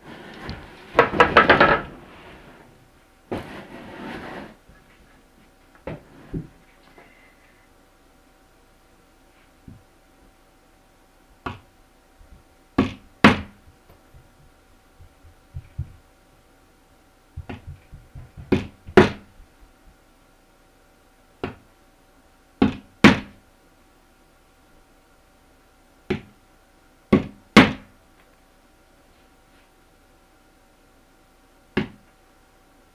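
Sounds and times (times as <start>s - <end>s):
hammer knocking nails into wood: 27.1s - 27.9s.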